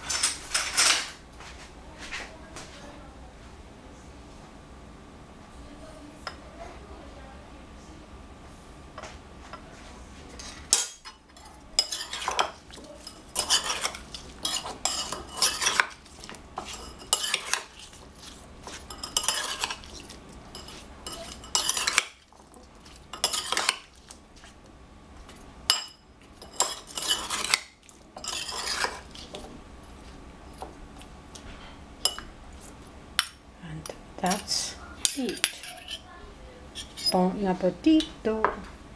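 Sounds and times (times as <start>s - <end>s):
metal spoons scraping a bowl: 10.4s - 24.0s, 25.7s - 29.3s, 34.2s - 36.1s, 36.7s - 37.3s.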